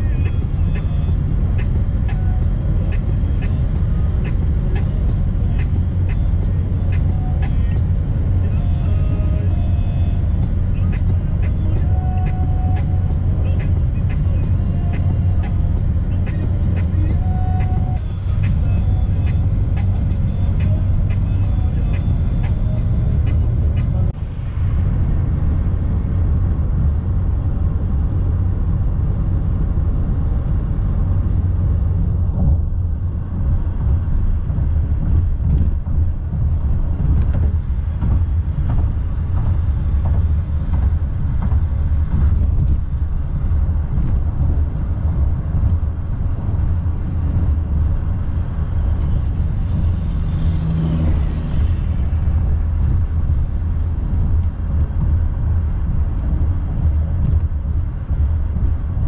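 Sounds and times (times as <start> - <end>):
car cabin road noise: 0.0 - 59.0
truck passing: 0.0 - 59.0.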